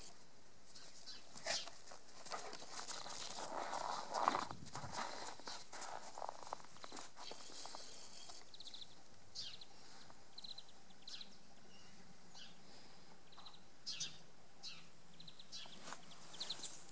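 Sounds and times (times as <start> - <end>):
small birds chirping: 0.0 - 1.9, 6.2 - 16.9
steady outdoor hiss: 0.0 - 16.9.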